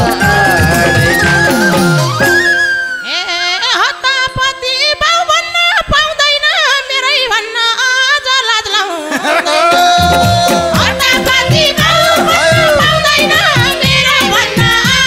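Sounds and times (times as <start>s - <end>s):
hand drum rhythm: 0.0s - 2.4s, 9.5s - 15.0s
folk band instrumental: 0.0s - 3.1s, 9.5s - 15.0s.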